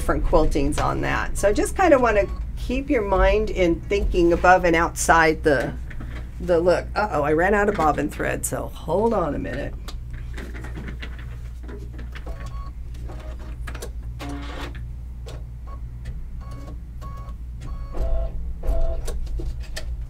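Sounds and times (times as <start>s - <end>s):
steady low hum: 0.0s - 20.0s
embroidery machine clicks and blips: 16.4s - 19.2s.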